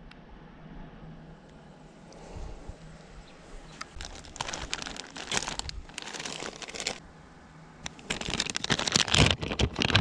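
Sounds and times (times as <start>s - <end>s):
plastic packets crinkling: 3.8s - 7.0s, 7.9s - 10.0s.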